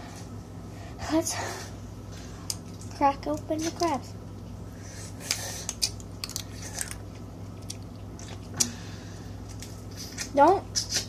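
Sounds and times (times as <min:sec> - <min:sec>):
crab shells cracking: 0:05.2 - 0:08.7.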